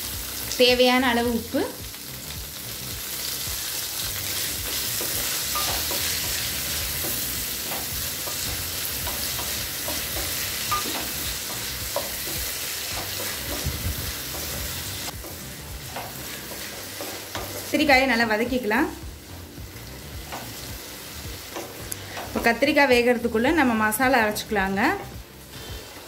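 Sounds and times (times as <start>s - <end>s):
vegetables sizzling in hot oil: 0.0s - 26.0s.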